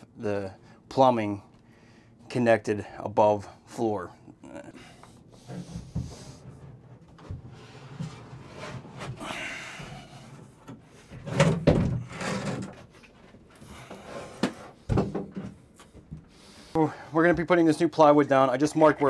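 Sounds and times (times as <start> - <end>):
bathtub knocking and scraping: 11.2 - 12.8.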